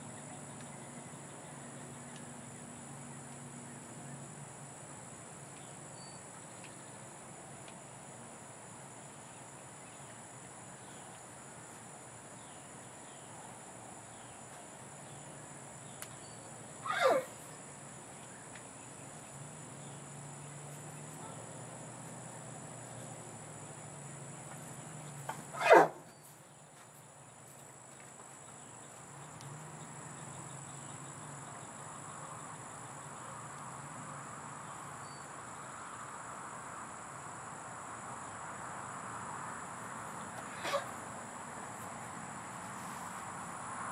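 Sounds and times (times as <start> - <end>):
crickets chirping: 0.0 - 43.9
horse squeals: 16.8 - 17.4, 25.5 - 26.1, 40.5 - 41.0.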